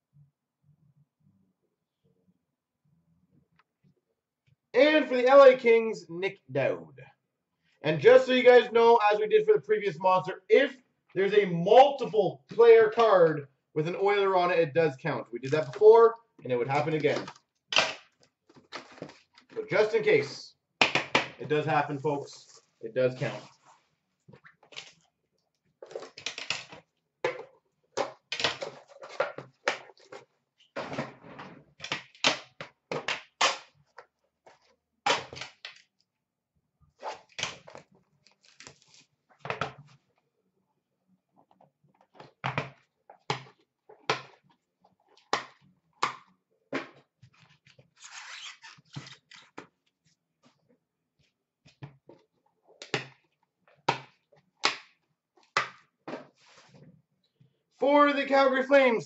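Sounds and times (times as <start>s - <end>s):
cardboard and wrappers rustling: 18.2s - 19.7s, 37.6s - 39.2s.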